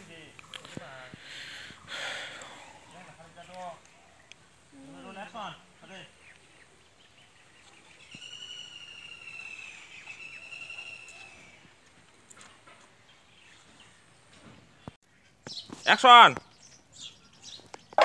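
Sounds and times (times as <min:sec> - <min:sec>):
faint outdoor background noise: 0:00.0 - 0:18.0
high whistling tone: 0:08.1 - 0:11.3.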